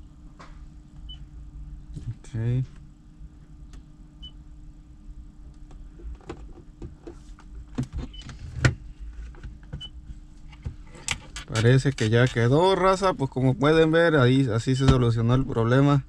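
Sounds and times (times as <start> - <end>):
low hum in car: 0.0 - 16.0
touch-screen stereo beeps: 14.7 - 15.1.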